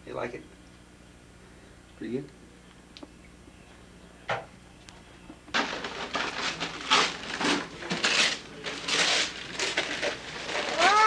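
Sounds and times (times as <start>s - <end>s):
wrapping paper rustling: 5.5s - 11.0s.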